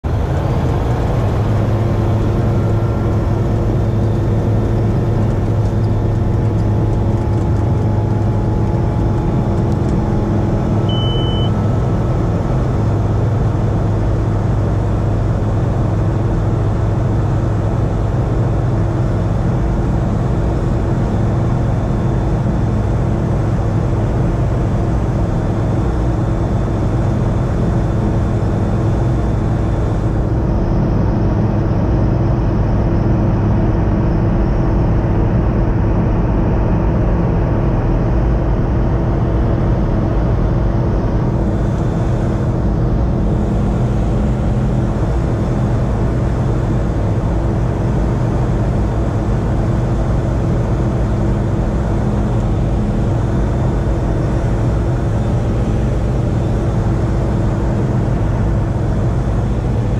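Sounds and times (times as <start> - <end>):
light aircraft engine and propeller: 0.0 - 59.9
short high beep: 10.9 - 11.6.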